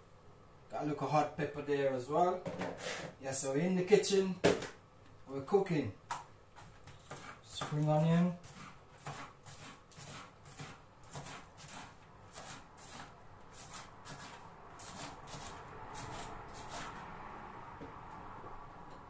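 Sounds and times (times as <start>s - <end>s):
knife chopping on a board: 6.6s - 16.9s.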